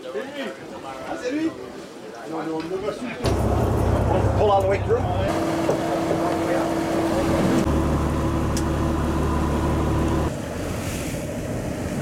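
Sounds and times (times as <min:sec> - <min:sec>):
wind: 0:00.0 - 0:12.0
motorboat engine humming: 0:03.2 - 0:12.0
waves on water: 0:10.2 - 0:12.0.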